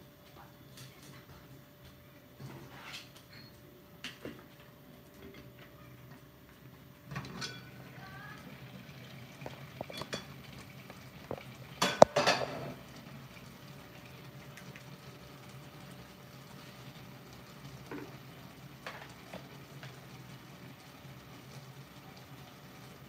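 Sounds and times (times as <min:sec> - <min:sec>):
dishes and utensils clattering: 0:02.4 - 0:04.4, 0:07.1 - 0:07.8, 0:09.5 - 0:10.6, 0:11.3 - 0:12.8.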